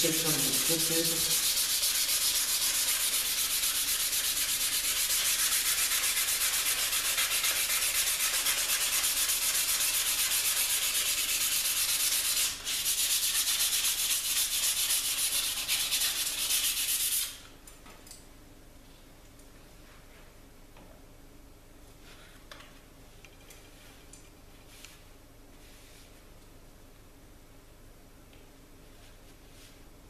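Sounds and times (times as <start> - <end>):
sandpaper rubbing on steel blade: 0.0 - 17.4.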